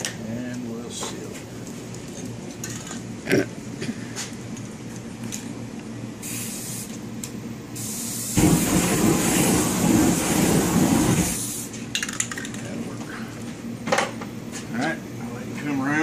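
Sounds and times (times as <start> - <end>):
aerosol spray can hissing: 6.2 - 6.9, 7.8 - 11.7
torch flame rushing burn: 7.8 - 11.8.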